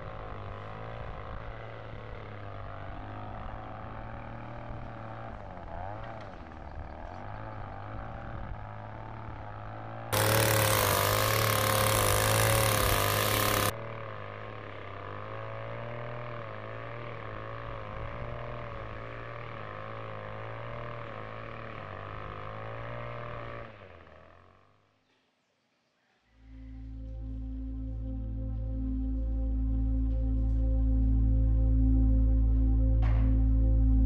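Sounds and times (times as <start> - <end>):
string trimmer engine revving: 0.0 - 24.8.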